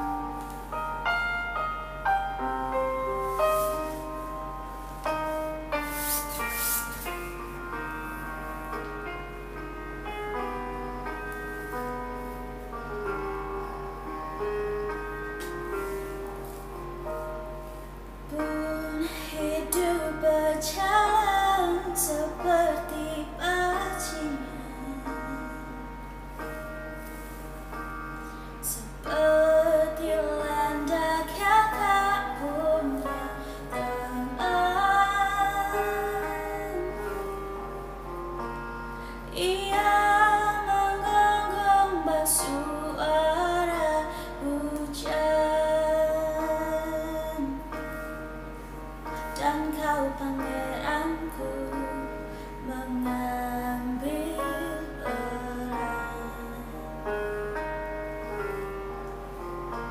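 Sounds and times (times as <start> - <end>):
backing track music: 0.0 - 59.9
woman singing: 18.3 - 26.0, 28.6 - 37.3, 39.3 - 47.8, 49.3 - 57.1.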